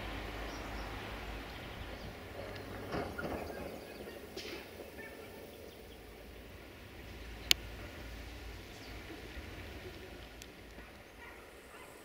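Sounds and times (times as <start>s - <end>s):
low rumble: 0.0s - 11.6s.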